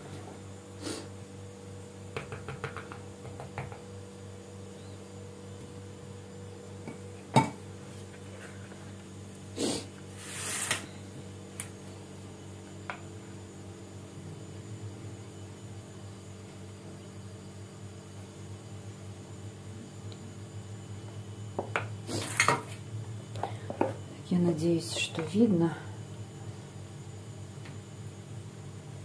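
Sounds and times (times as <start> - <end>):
low steady hum: 0.0 - 29.0
scrape or rustle: 10.1 - 10.9.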